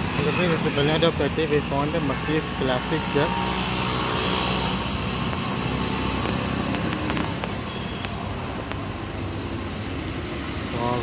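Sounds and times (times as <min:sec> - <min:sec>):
street noise: 0:00.0 - 0:11.0
vehicle engine: 0:00.0 - 0:11.0.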